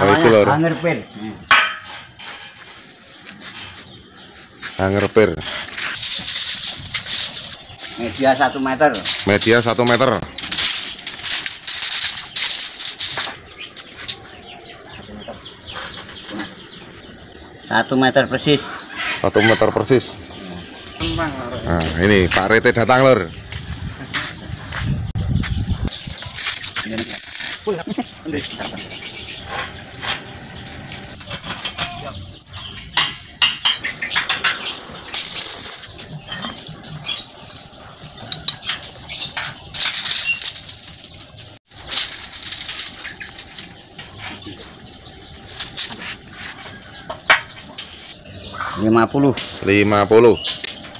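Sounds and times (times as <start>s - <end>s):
metallic clanks and knocks: 1.4s - 2.8s, 29.4s - 37.2s, 46.6s - 48.0s
rattling scraping noise: 1.5s - 14.4s, 18.4s - 27.9s, 28.5s - 48.3s.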